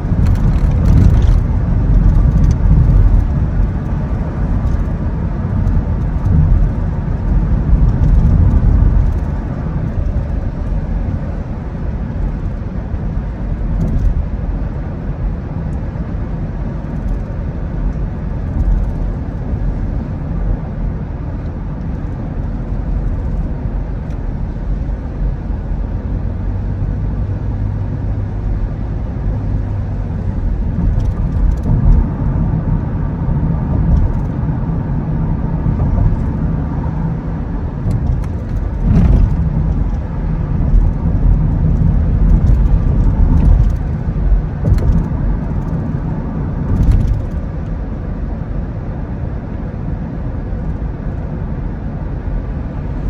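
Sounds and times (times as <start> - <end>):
car tyres and engine rumble: 0.0 - 53.0.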